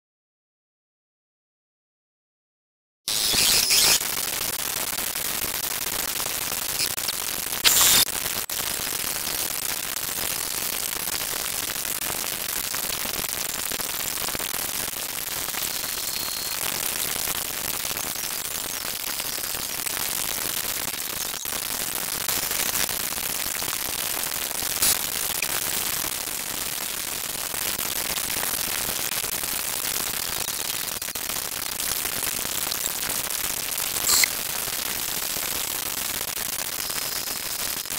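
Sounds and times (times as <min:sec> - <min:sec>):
static hiss: 0:03.1 - 0:37.9
brief crackles: 0:06.6 - 0:08.1, 0:34.0 - 0:34.4.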